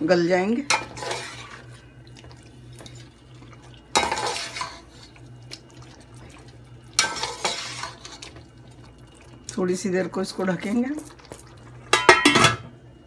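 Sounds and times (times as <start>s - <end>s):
low steady hum: 0.0s - 13.0s
metal spoon scraping a pot: 0.7s - 1.7s, 4.0s - 5.1s, 7.0s - 8.3s.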